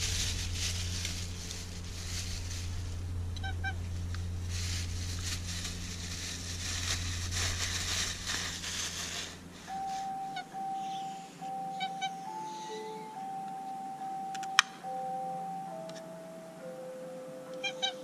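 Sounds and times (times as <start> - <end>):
hissing rustle: 0.0 - 10.4
steady held tone: 0.0 - 17.8
steady low hum: 0.0 - 18.0.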